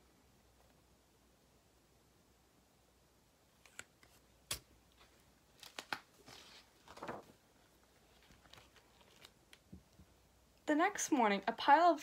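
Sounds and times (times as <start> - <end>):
page being turned: 3.6 - 9.6.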